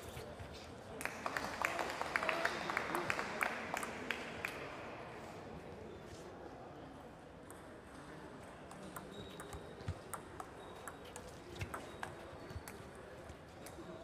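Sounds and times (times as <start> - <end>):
faint hall background: 0.0 - 14.0
table tennis ball clicks: 8.7 - 12.8.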